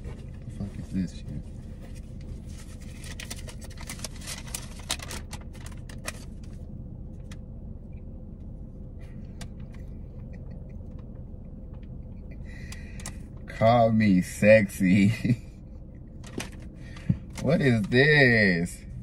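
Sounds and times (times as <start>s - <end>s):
low hum inside car: 0.0s - 19.0s
paper crackling and rustling: 1.9s - 6.6s.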